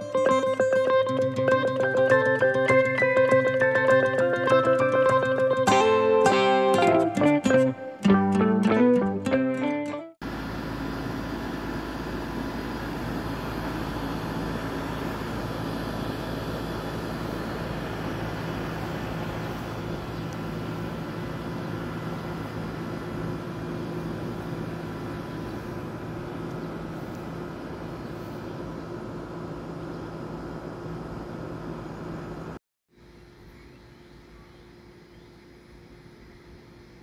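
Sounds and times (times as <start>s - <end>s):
motor droning: 10.2s - 32.6s
low hum: 10.3s - 37.0s.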